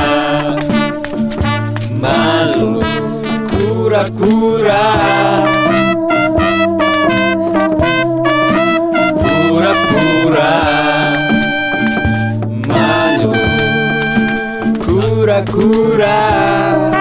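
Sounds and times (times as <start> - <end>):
instrumental band music: 0.0 - 17.0
steady high notes: 4.6 - 14.8.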